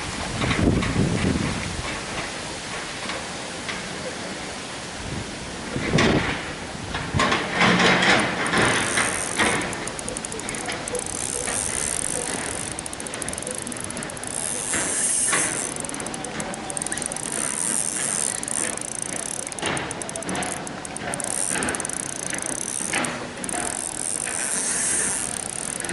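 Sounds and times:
fishing reel gears whirring: 7.6 - 25.9.

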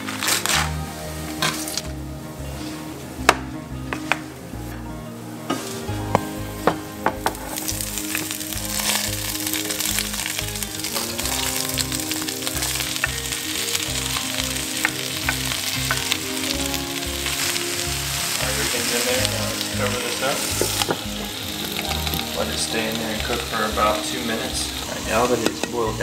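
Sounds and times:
vegetables sizzling in hot oil: 7.2 - 26.0.

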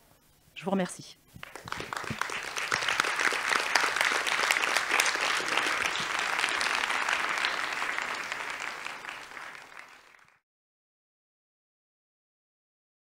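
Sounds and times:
audience applauding: 1.4 - 10.4.

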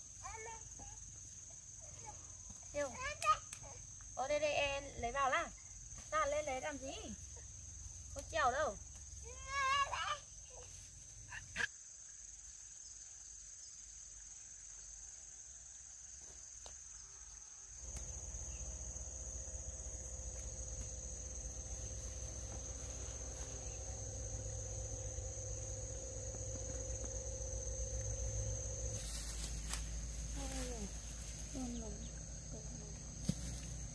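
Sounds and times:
insects droning: 0.0 - 33.9
faint steady hum: 17.5 - 33.9
low rumble: 18.0 - 33.9.

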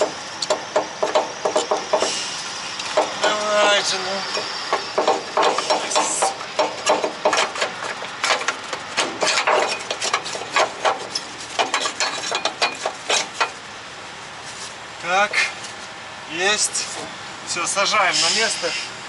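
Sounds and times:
metallic clanks and knocks: 0.0 - 2.2, 2.9 - 13.6.

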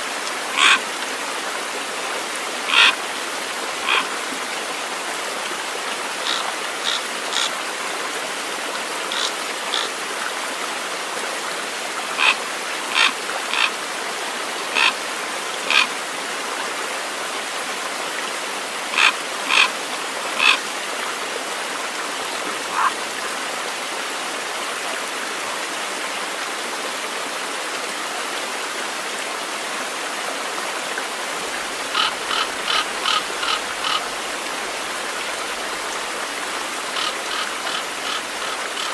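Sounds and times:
stream rushing: 0.0 - 38.9
short high animal calls: 0.5 - 0.8, 2.7 - 3.0, 3.8 - 4.1, 12.2 - 13.7, 14.7 - 14.9, 15.7 - 15.9, 18.9 - 19.7, 20.4 - 20.6, 22.6 - 23.0.

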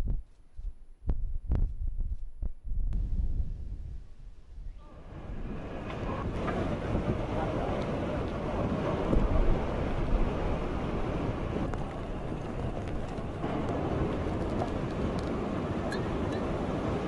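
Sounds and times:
strong wind on microphone: 0.0 - 17.0.

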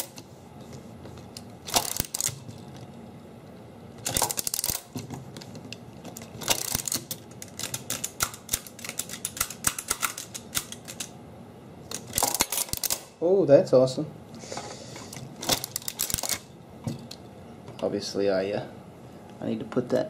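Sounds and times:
adding machine mechanism clicking: 6.1 - 11.1.

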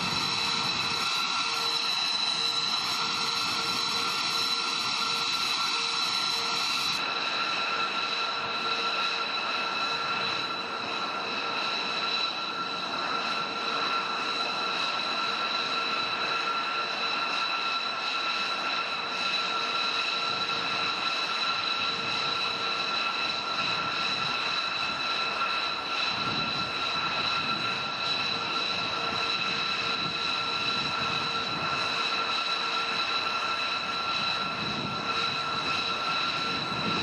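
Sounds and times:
jet engine idling: 0.0 - 37.0.

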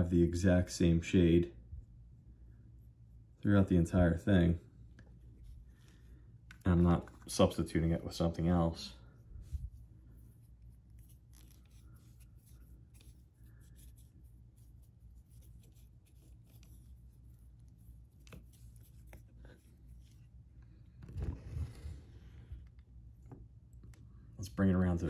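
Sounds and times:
room hum: 0.0 - 25.0
paintbrush scratching and tapping: 9.6 - 20.3.

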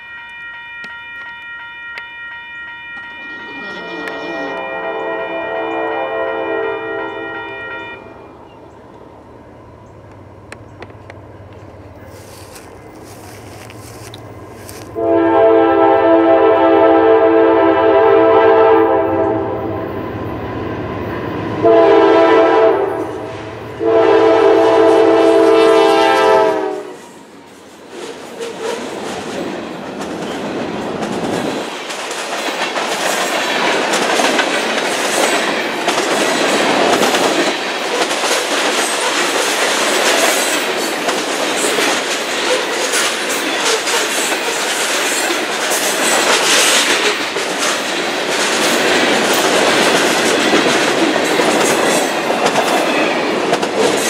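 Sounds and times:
locomotive air horn blasts: 0.0 - 8.3, 15.0 - 19.8, 21.6 - 27.2
train wheels clacking on rails: 27.4 - 54.0.

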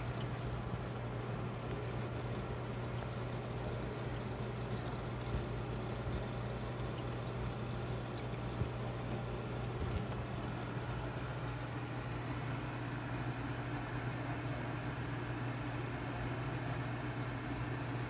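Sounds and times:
water falling into tank: 0.0 - 12.1
low pump hum: 0.0 - 18.0.

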